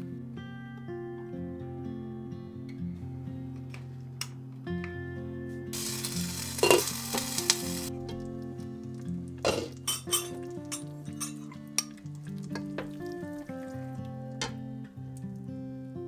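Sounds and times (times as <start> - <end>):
soft acoustic guitar music: 0.0 - 16.0
soup hissing and bubbling: 5.8 - 9.9, 11.6 - 14.4
metal ladle clinking: 6.6 - 6.9, 9.5 - 12.0
glass lid clinking: 6.6 - 7.0, 9.5 - 12.0.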